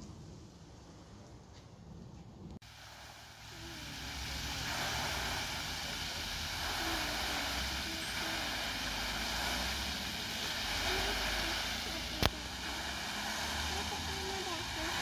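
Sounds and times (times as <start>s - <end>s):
fountain spray splashing: 2.6s - 15.0s.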